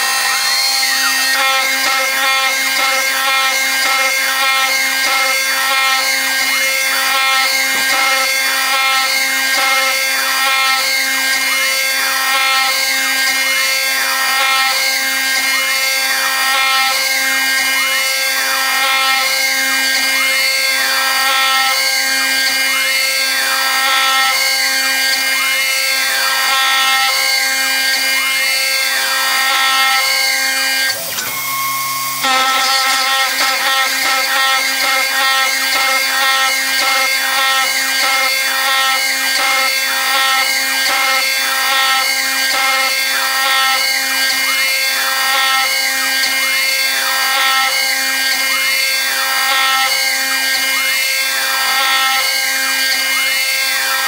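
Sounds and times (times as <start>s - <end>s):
cutter tone sweeping up and down: 0.0s - 10.0s
milling spindle whine: 0.0s - 54.0s.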